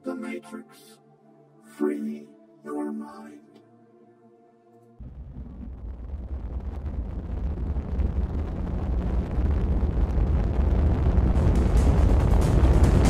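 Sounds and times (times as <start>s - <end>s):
deep rumbling: 5.0s - 13.0s.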